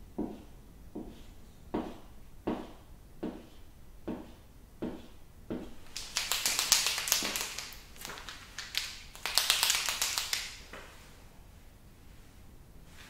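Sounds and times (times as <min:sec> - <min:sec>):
marker being shaken rattling: 0:05.8 - 0:10.7.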